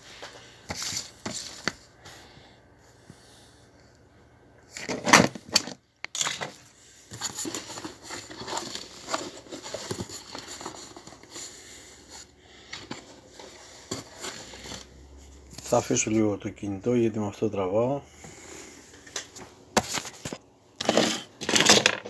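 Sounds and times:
rustling and crinkling packaging: 0.0s - 1.9s, 4.7s - 15.8s.

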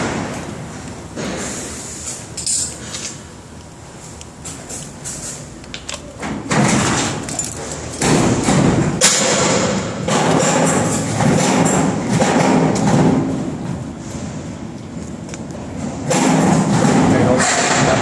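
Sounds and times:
heavy handling noise: 0.0s - 18.0s
sharp knocks: 8.0s - 13.4s.

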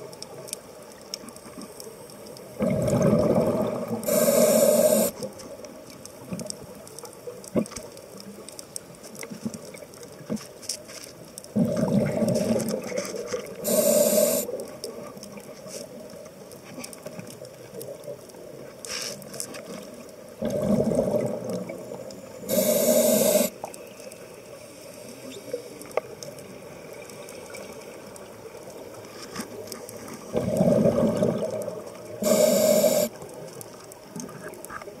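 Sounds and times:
faint ticks: 0.0s - 35.0s
low steady hiss: 0.0s - 35.0s
bubbling exhalation underwater: 2.6s - 4.2s, 11.6s - 12.8s, 20.4s - 21.6s, 30.3s - 32.4s
regulator inhalation hiss: 4.0s - 5.3s, 13.6s - 14.6s, 22.4s - 23.6s, 32.2s - 33.2s.

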